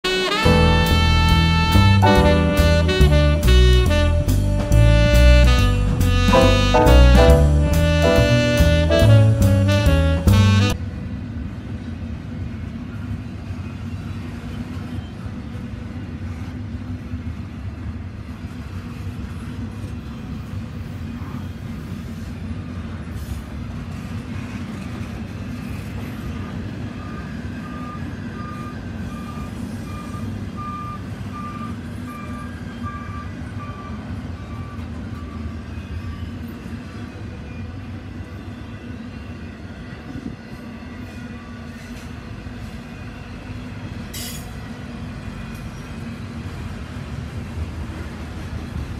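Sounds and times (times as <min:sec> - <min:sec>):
freight train wheels rumbling: 0:00.1 - 0:48.9
truck back-up alarm beeping: 0:27.0 - 0:35.6.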